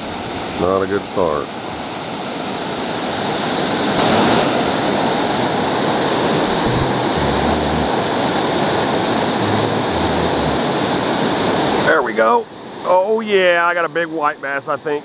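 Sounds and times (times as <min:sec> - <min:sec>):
river rushing over rocks: 0:01.5 - 0:13.0.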